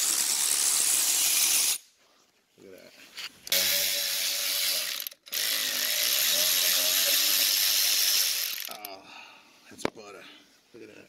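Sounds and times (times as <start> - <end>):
power ratchet whining: 0.0 - 1.8, 3.5 - 8.9.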